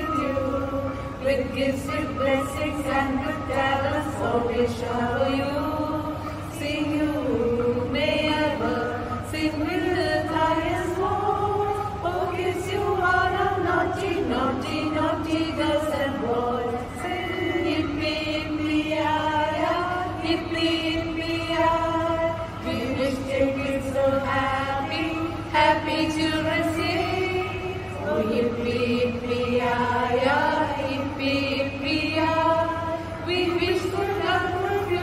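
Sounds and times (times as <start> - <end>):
women singing together: 0.0 - 35.0.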